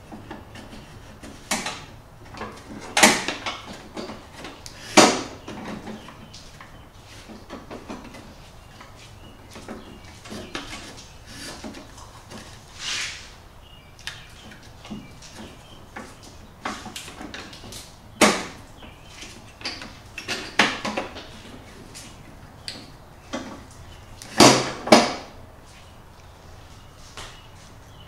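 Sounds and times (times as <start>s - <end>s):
brief scrape: 12.8s - 13.4s.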